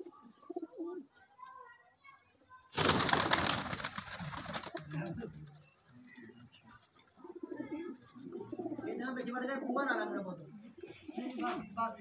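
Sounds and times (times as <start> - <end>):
pigeon wingbeats: 2.7 - 9.4
pigeons cooing: 4.0 - 11.9.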